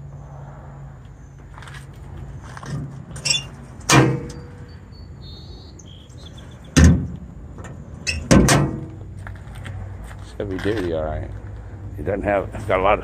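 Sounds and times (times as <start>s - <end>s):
metal compartment door clunks: 2.7s - 4.5s, 6.7s - 9.0s
faint bird chirps: 4.3s - 6.8s.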